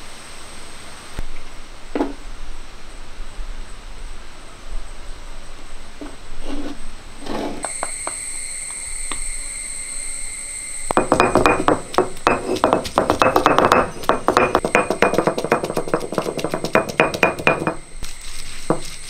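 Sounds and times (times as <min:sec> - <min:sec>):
stone roller knocking on slab: 0:07.3 - 0:08.2, 0:10.9 - 0:17.8, 0:18.6 - 0:18.9
soft clatters on stone: 0:11.0 - 0:17.8.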